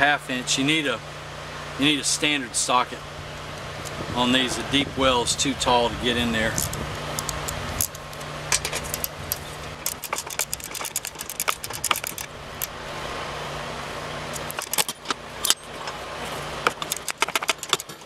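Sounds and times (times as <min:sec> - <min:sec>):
ratchet wrench clicking: 0:06.5 - 0:12.8, 0:14.4 - 0:15.6.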